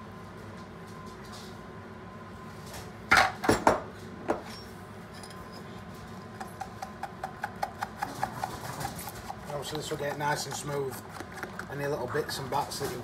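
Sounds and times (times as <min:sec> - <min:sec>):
spoon scraping wire sieve: 0:06.5 - 0:12.9.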